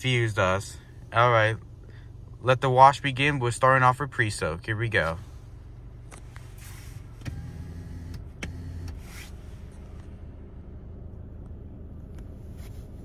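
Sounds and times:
low rumble: 7.9 - 13.0.

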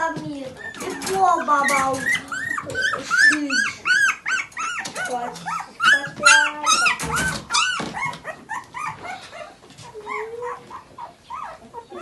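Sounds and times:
puppies squealing and whining: 0.0 - 12.0.

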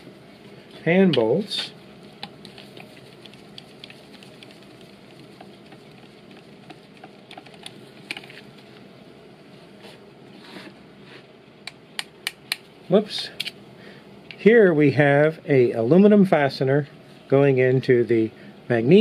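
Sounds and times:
low steady hiss: 0.0 - 6.5, 11.4 - 19.0.

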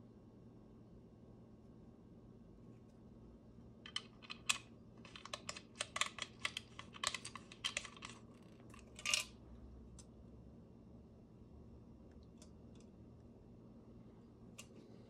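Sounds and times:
small metal clicks and rattles: 3.8 - 9.4.

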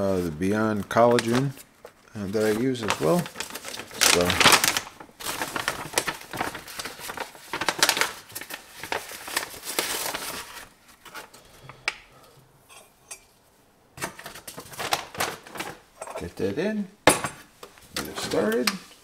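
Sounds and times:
plastic pouch crinkling: 0.8 - 11.2, 14.5 - 15.8.

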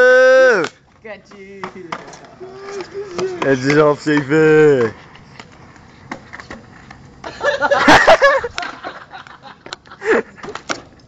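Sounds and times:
person crying out: 0.0 - 0.6, 2.4 - 3.5
person shouting: 0.0 - 0.7
skateboard clacks on concrete: 0.6 - 7.3, 10.4 - 11.0.

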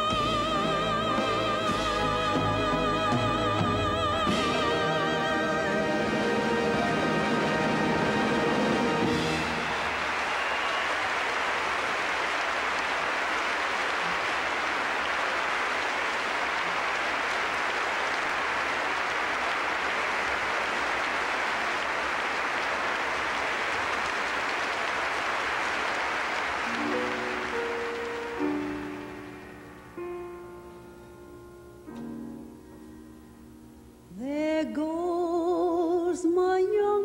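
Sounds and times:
audience applauding: 6.4 - 30.0.

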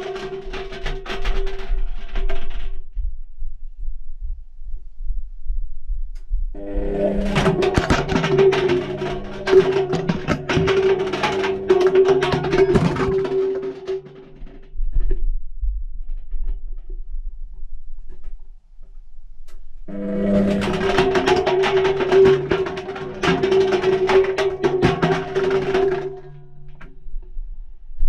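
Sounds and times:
low rumble: 2.2 - 23.0
washing machine motor hum: 6.6 - 14.4
rapid clattering knocks: 6.6 - 14.6, 19.9 - 27.0.

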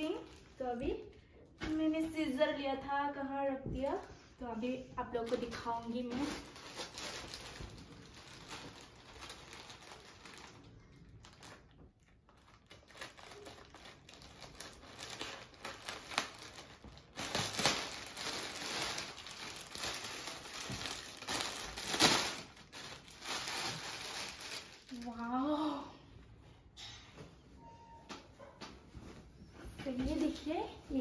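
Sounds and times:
plastic packaging crinkling: 0.0 - 1.0, 5.0 - 25.6.

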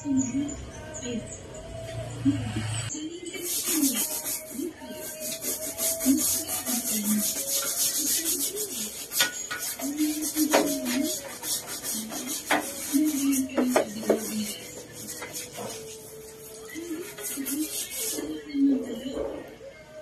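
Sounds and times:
quick scrubbing strokes: 3.4 - 18.3.

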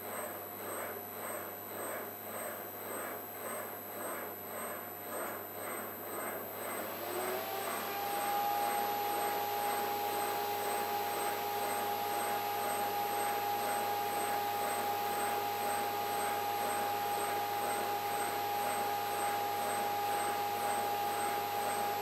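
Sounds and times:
testing machine motor whine: 6.8 - 22.0.

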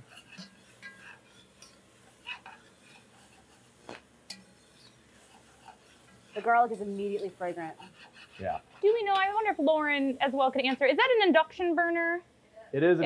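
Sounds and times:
metal spoon scraping pot: 0.0 - 10.8
spoon clinking against pot: 0.2 - 2.7, 4.3 - 4.9.

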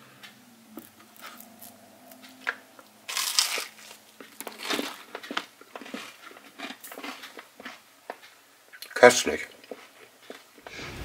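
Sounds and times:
biting and chewing crisp toast: 0.8 - 9.0.

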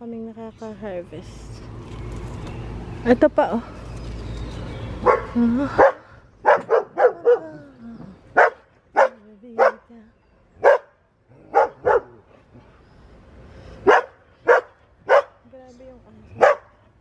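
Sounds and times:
dog barking: 5.0 - 7.5, 8.4 - 9.8, 10.6 - 12.2, 13.8 - 15.4, 16.4 - 16.7.

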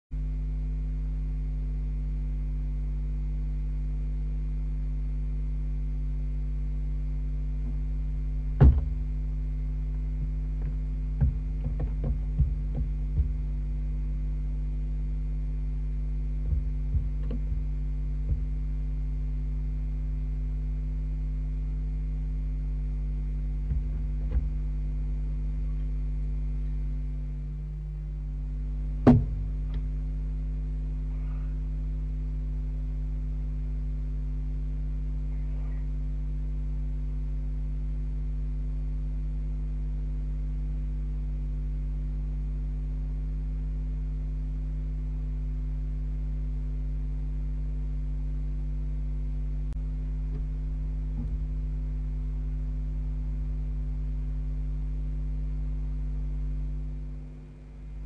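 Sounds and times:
electrical mains hum: 0.1 - 58.0
owl knocking on wooden box: 8.6 - 9.0, 10.6 - 13.4, 23.7 - 24.5, 29.1 - 29.5.

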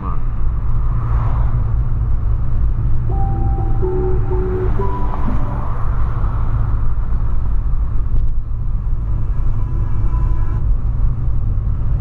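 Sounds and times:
faint car stereo music: 3.1 - 6.5.

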